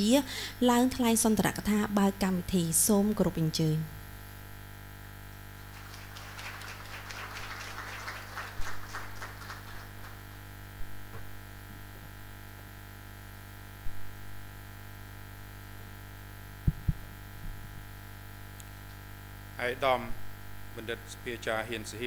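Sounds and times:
electrical hum: 0.0 - 22.0
audience applause: 5.6 - 10.4
dull knocks: 16.7 - 17.0.

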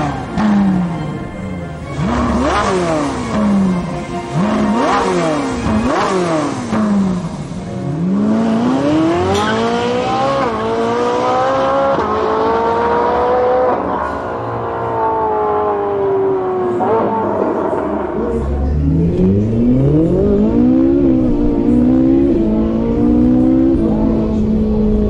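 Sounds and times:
racing car engine downshifting and accelerating: 0.0 - 25.0.

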